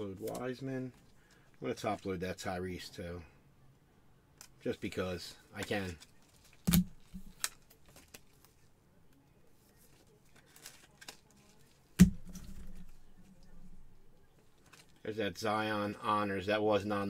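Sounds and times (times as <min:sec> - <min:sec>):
card and plastic rustling: 0:05.6 - 0:08.7, 0:09.6 - 0:15.0.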